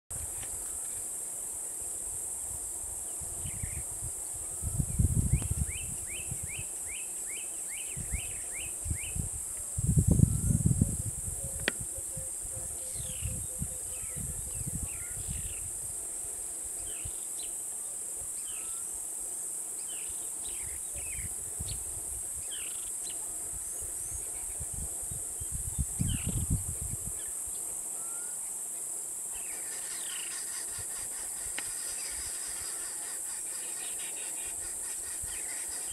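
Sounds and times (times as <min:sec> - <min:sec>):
high-pitched insect drone: 0:18.3 - 0:35.9.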